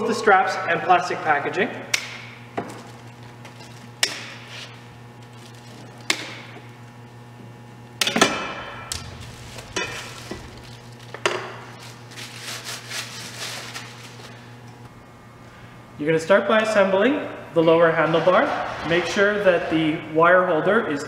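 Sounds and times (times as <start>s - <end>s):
plastic wrap crinkling: 2.6s - 6.0s, 9.0s - 14.6s.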